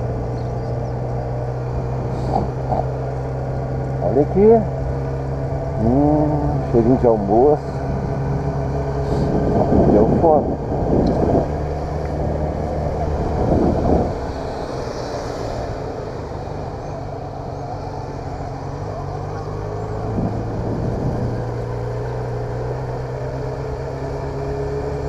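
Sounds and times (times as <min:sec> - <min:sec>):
motorcycle engine at low revs: 0:00.0 - 0:25.0.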